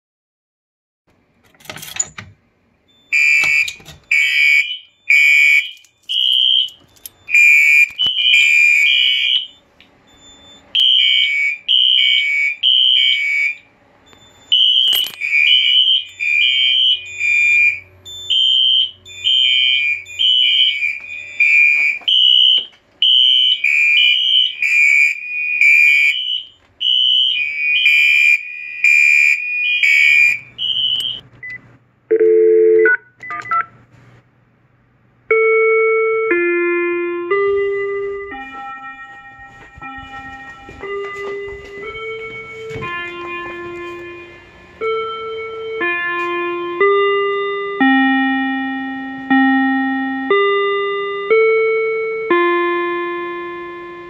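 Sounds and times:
fire alarm horns pulsing: 2.9s - 31.3s, 35.3s - 54.0s
fire alarm pull station click: 3.2s - 4.4s, 5.2s - 7.2s, 14.1s - 16.3s.

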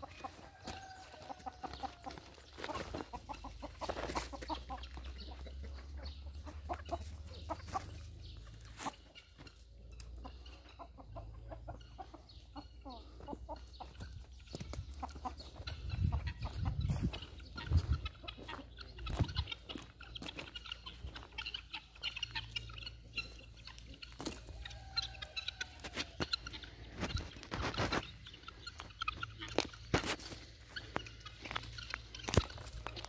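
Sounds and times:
guineafowl calling: 0.0s - 33.0s.

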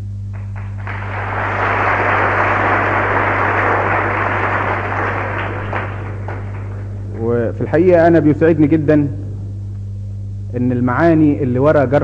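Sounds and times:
low mains hum: 0.0s - 12.0s
audience applauding: 0.3s - 7.2s.

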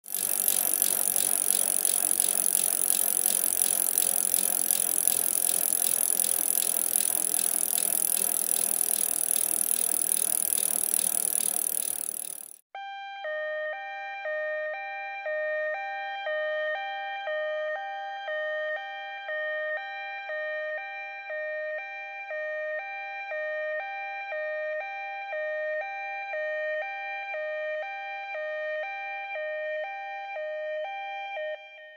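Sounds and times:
dense fast rattling: 0.0s - 12.6s.

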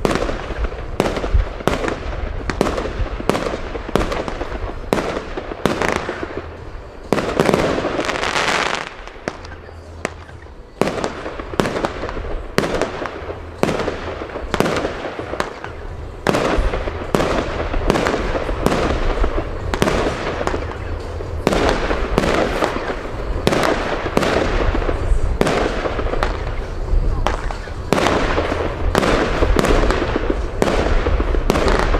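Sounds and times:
firework bangs: 0.0s - 31.9s
firework hissing: 0.0s - 31.9s.

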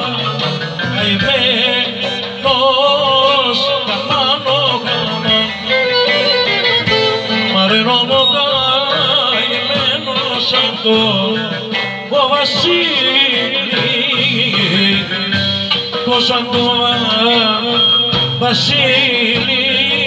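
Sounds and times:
person singing wavering melody: 0.0s - 15.1s
plucked strings: 0.0s - 20.0s.

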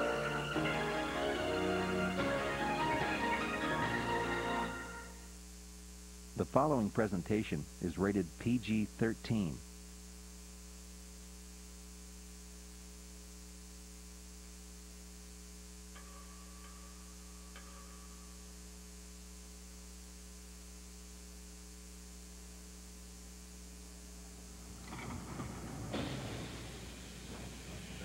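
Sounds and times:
electrical mains hum: 0.0s - 28.0s
faint hiss: 0.0s - 28.0s.

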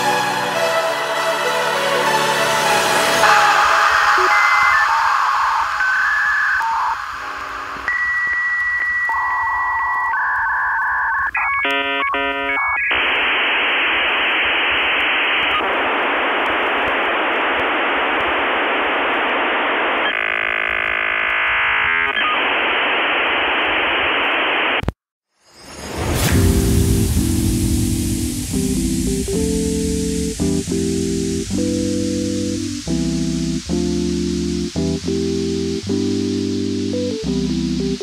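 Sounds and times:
dial-up modem connecting: 3.2s - 25.0s.

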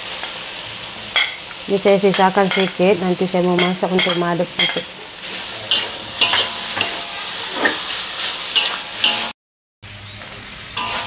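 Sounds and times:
food sizzling in a wok: 0.0s - 11.0s
spatula scraping a wok: 3.6s - 9.3s, 10.7s - 11.0s.

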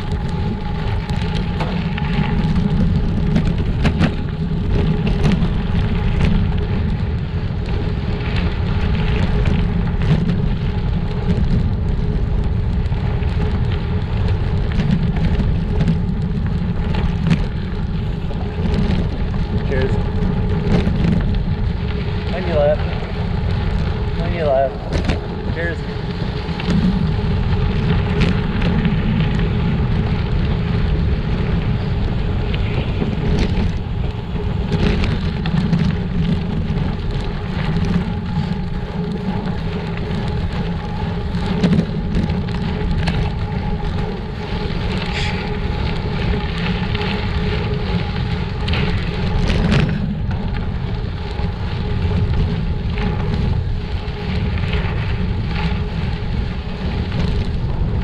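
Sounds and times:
tyres crunching on gravel: 0.0s - 56.2s
steady hum: 0.0s - 57.6s
bike rattling and knocking: 0.0s - 58.0s
wind rumbling on microphone: 0.0s - 58.0s.

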